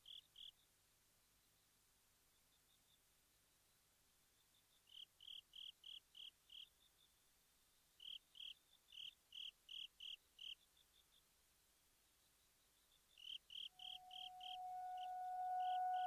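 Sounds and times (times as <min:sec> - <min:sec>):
insect chirping: 0:00.0 - 0:00.7, 0:04.4 - 0:11.3, 0:12.1 - 0:16.0.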